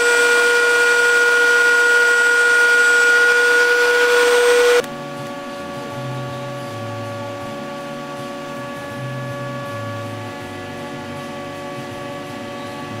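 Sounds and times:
stepper motors whining: 0.0s - 4.9s.

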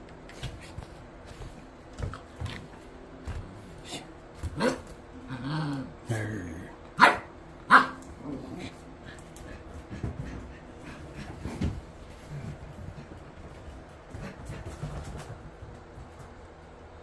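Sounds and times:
puppy barking: 4.6s - 4.9s, 7.0s - 8.1s.

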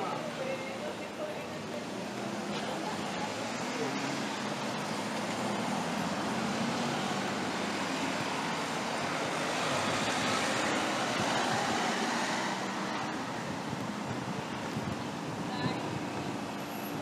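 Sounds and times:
cars and tyres on road: 0.0s - 17.0s
vehicle passing: 2.0s - 15.0s.

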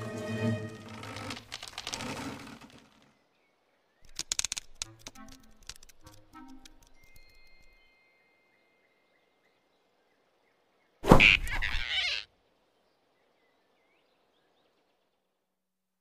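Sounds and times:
cartoon thump: 11.0s - 11.8s.

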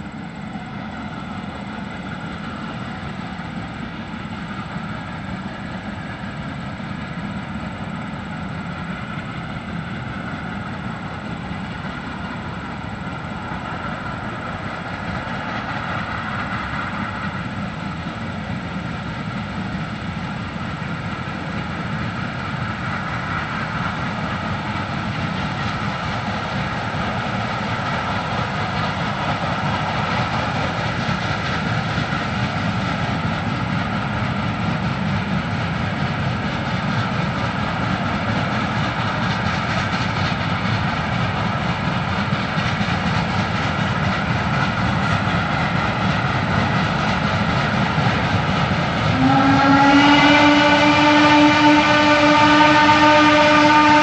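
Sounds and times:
steam locomotive exhaust: 0.0s - 54.0s
steam whistle: 49.1s - 54.0s.

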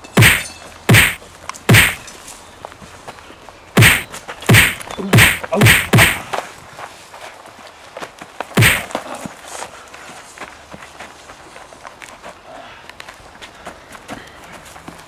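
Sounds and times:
sharp whacks of fist blows: 0.2s - 2.0s, 3.8s - 6.3s, 8.6s - 9.0s.

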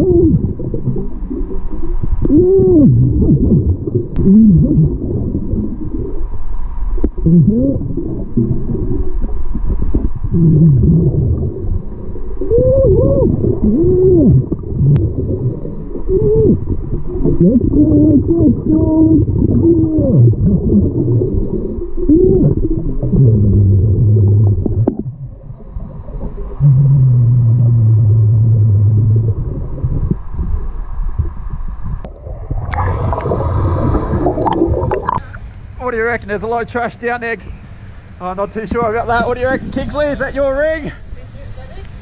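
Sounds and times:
underwater bubbling rumble: 0.0s - 35.8s, 38.6s - 40.4s
steady low hum: 0.0s - 42.0s
diver breathing through regulator: 11.4s - 12.6s, 15.0s - 16.2s, 20.8s - 22.1s, 25.4s - 28.4s.

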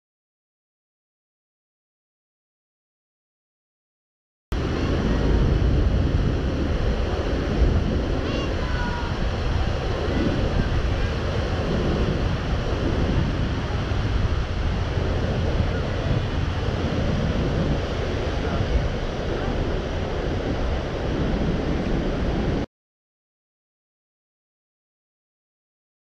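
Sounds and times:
waves washing: 4.6s - 22.7s
wind on microphone: 4.6s - 22.7s.

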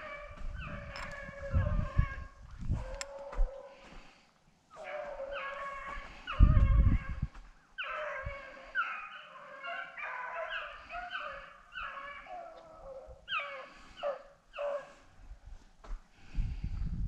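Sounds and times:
hounds baying: 0.0s - 3.9s, 4.7s - 7.1s, 7.8s - 15.1s.

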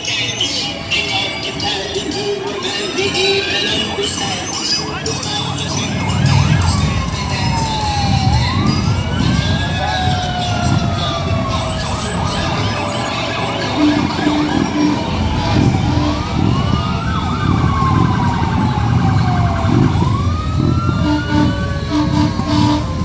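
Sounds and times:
fire truck sirens wailing: 0.0s - 23.0s
truck engines rumbling: 0.0s - 23.0s
short low horn tones: 13.6s - 16.6s, 21.0s - 23.0s.

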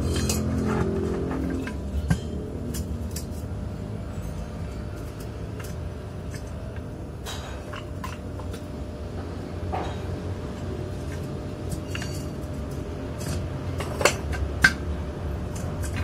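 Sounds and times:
steel pieces clinking: 0.0s - 6.5s, 11.1s - 16.0s
low hum: 0.0s - 16.0s.

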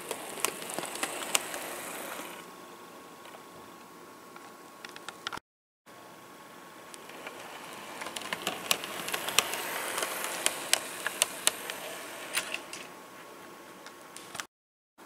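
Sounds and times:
model locomotive running: 0.0s - 2.4s, 6.8s - 12.9s
train wheels clicking over rail joints: 7.0s - 12.7s.

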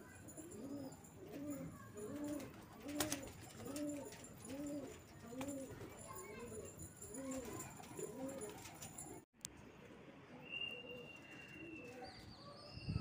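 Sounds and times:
pigeon cooing: 0.4s - 5.8s, 7.1s - 8.9s.

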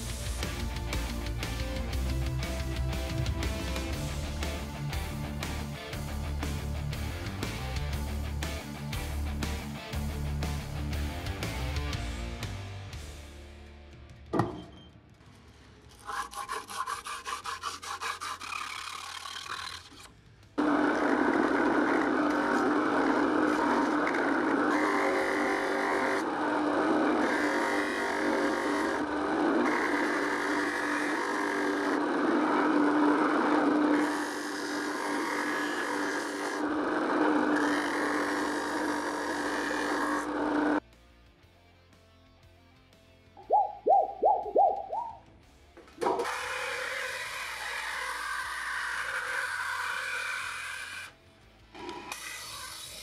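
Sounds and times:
bench grinder grinding blade: 15.9s - 40.8s, 46.0s - 53.0s.

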